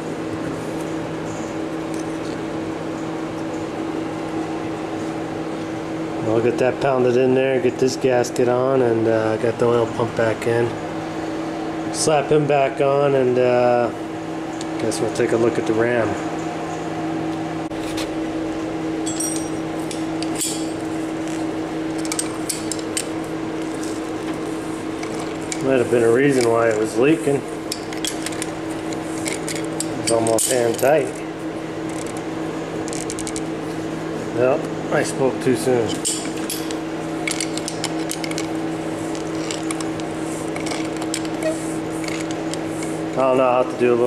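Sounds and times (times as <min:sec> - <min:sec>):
steady low hum: 0:00.0 - 0:44.0
hand tools clinking on metal: 0:19.1 - 0:20.8, 0:29.2 - 0:31.1
pliers clicking and scraping on metal: 0:27.7 - 0:30.9, 0:35.9 - 0:38.5.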